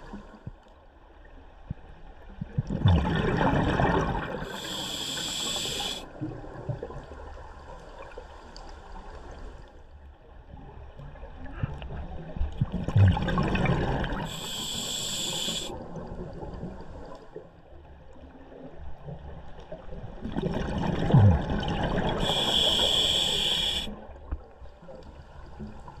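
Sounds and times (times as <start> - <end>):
exhaled bubbles gurgling: 2.4 - 6.0, 12.6 - 16.6, 20.2 - 23.9
hissing regulator breath: 4.4 - 6.0, 14.3 - 15.7, 22.2 - 23.9.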